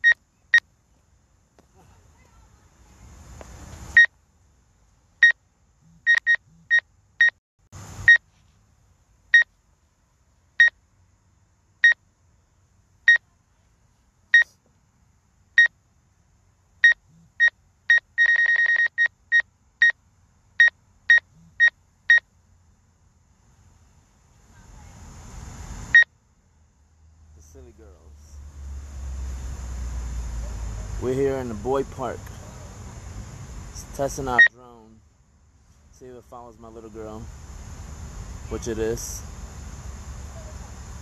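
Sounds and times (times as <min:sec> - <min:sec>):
short high electronic beeps: 0:06.1 - 0:07.4, 0:16.8 - 0:20.0.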